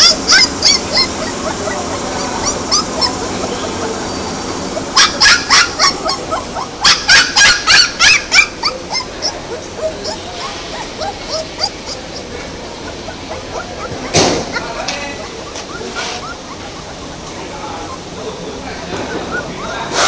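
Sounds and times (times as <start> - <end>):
puppies whining and yelping: 0.0 - 20.0.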